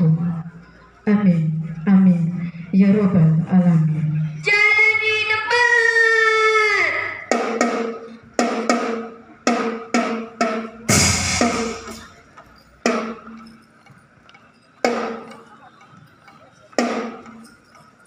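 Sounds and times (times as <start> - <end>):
marching snare and bass drums: 7.3 - 13.5, 14.8 - 15.5, 16.8 - 17.5.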